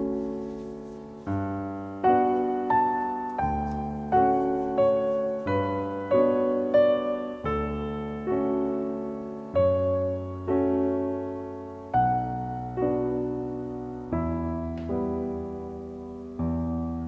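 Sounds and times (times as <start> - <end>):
gentle piano music: 0.0 - 17.0.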